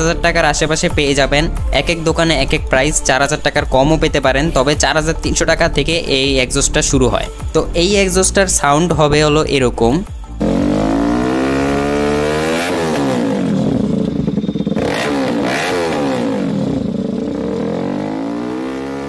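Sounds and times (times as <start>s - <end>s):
motorcycle revving: 10.4s - 19.0s.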